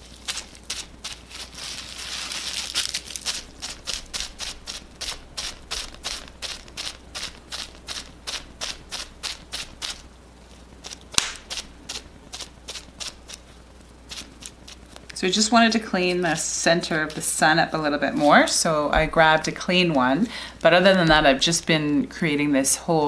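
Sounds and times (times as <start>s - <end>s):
bubble wrap dabbing on paper: 0.0s - 21.9s.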